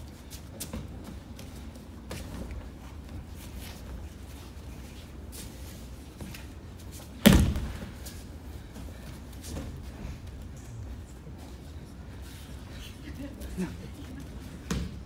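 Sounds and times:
light taps and shuffles on a mat: 0.0 - 15.0
body thudding onto a mat: 7.2 - 8.1.

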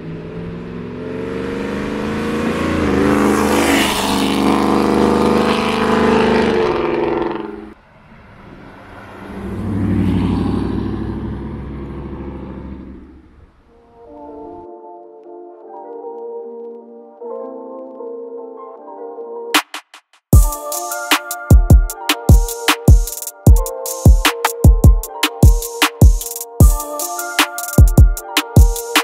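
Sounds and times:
supercharged truck engine accelerating: 0.0 - 14.5.

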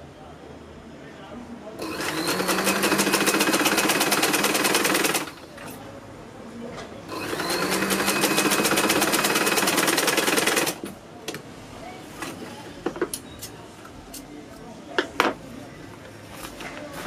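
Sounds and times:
sewing machine stitching: 1.8 - 5.5, 7.1 - 10.9.

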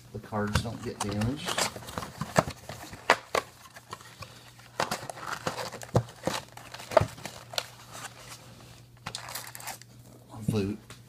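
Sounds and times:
foil packs rustling: 0.3 - 9.8
cardboard box handled: 4.8 - 8.4.

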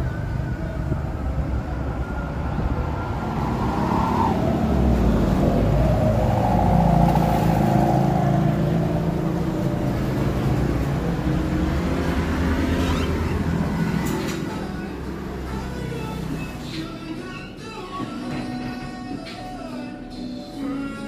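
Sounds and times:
vehicle engine passing: 0.0 - 16.5
steady low traffic rumble: 0.0 - 18.7.

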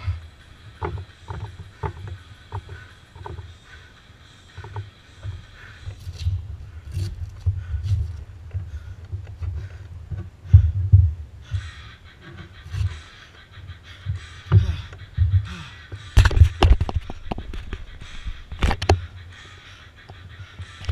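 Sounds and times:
person breathing hard: 0.0 - 0.7, 12.8 - 16.2
knocks and rattles of camera mount: 0.8 - 3.5, 16.2 - 19.1.

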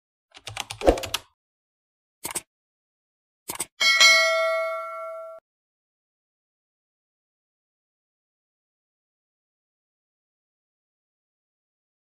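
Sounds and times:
keyboard typing clicks: 0.4 - 1.2, 2.2 - 2.5, 3.5 - 3.7
bright bell ding: 3.8 - 5.4.

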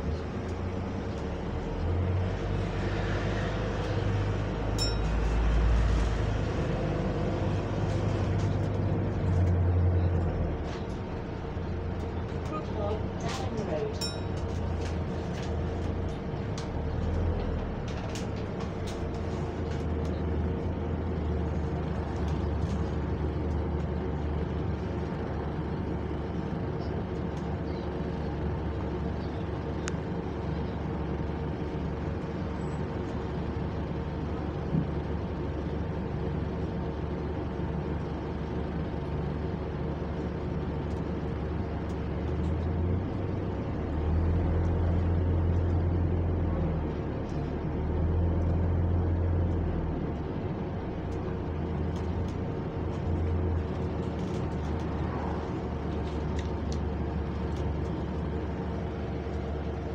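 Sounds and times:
bus engine low rumble: 0.0 - 59.9
cooling fan whine: 50.4 - 59.9.

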